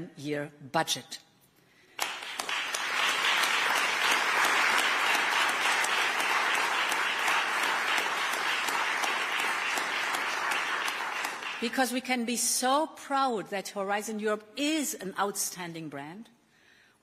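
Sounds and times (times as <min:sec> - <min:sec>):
audience applauding: 0:02.0 - 0:11.8.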